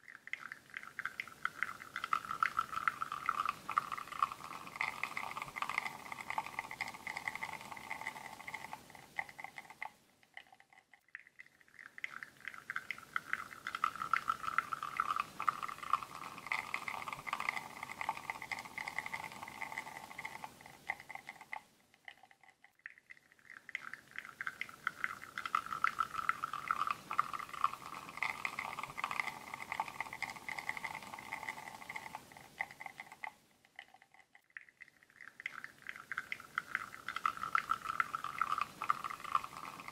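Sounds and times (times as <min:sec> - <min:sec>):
espresso sputtering into cup: 0:01.5 - 0:08.8, 0:13.6 - 0:21.4, 0:24.9 - 0:32.2, 0:37.0 - 0:39.9.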